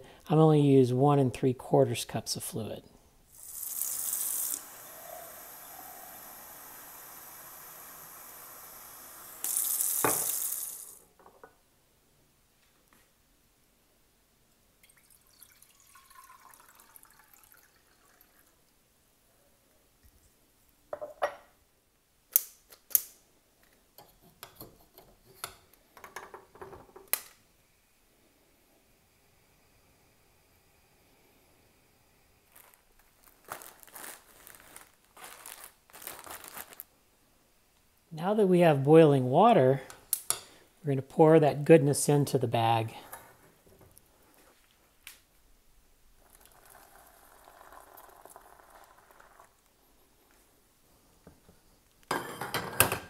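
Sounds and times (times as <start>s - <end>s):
water trickling into plastic bag: 14.8s - 18.5s, 32.5s - 36.9s, 46.2s - 49.6s.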